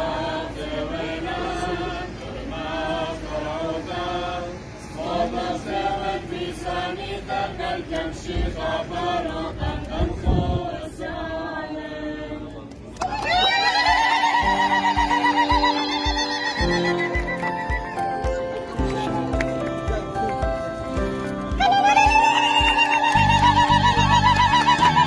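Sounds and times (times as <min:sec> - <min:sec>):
group singing a hymn: 0:00.0 - 0:13.0, 0:14.2 - 0:18.4.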